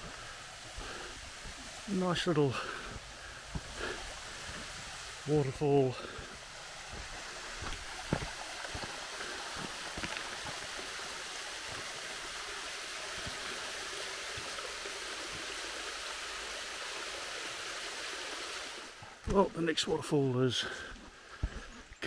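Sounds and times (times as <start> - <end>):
waterfall pouring into pool: 0.0 - 19.3.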